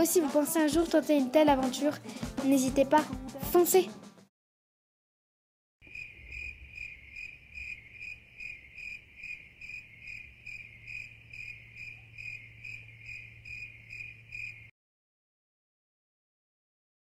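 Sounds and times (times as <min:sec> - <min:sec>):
insect chirping: 0:05.8 - 0:14.7.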